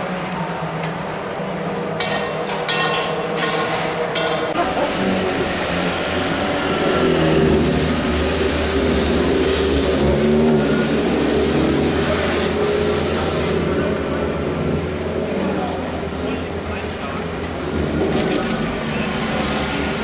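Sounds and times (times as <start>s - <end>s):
race car engine at low speed: 0.0s - 20.0s
steady high hiss: 4.6s - 13.8s.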